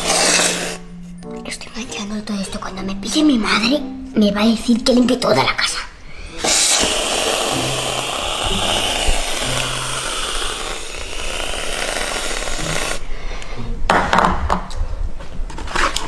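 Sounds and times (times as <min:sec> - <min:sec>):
aerosol cream can hissing: 0:00.0 - 0:00.9, 0:06.3 - 0:13.0.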